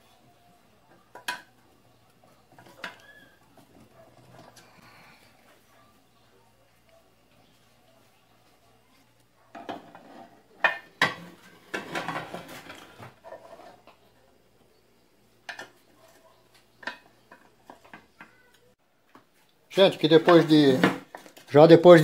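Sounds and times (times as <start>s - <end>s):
metal pot clanking on wood: 9.5s - 13.7s.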